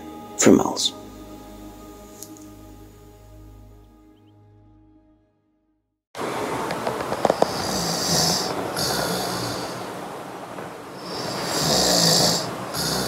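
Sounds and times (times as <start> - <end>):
man snoring: 7.2 - 10.0, 11.0 - 13.0.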